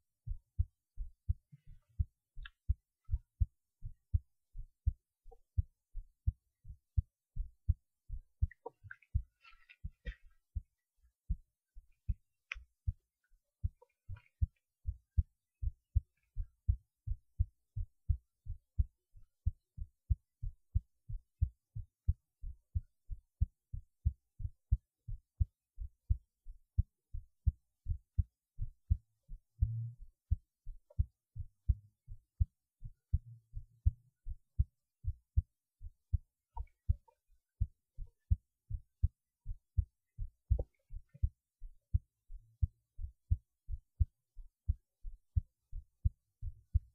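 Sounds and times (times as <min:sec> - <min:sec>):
heartbeat thumps: 0:00.2 - 0:13.0, 0:13.6 - 0:26.2, 0:26.8 - 0:46.9.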